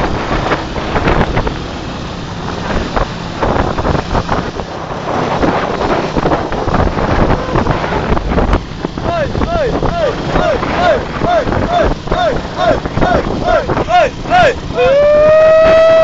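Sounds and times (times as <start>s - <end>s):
low engine and road rumble: 0.0s - 16.0s
wind buffeting microphone: 0.0s - 16.0s.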